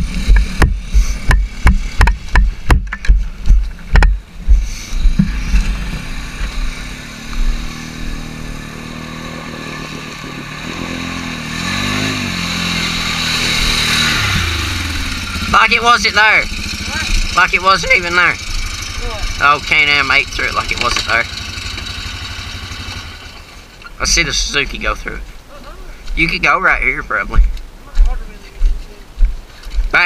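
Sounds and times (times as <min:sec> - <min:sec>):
dull thumps: 0:00.0 - 0:05.8
atv engine revving: 0:00.0 - 0:25.2.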